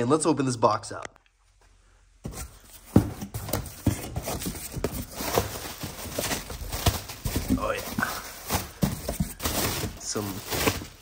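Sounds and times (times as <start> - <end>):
plastic packing rustling and crinkling: 2.2 - 11.0.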